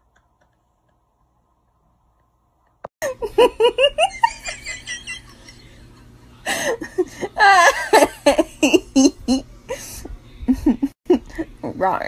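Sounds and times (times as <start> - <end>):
person laughing hard: 3.0 - 5.6, 6.5 - 9.9.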